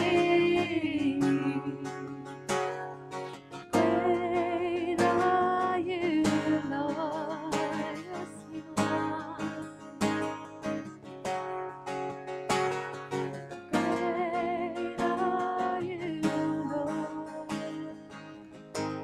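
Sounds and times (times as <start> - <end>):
woman singing with vibrato: 0.0 - 2.4, 3.7 - 10.2, 13.7 - 18.3
acoustic guitar strumming: 0.0 - 19.0.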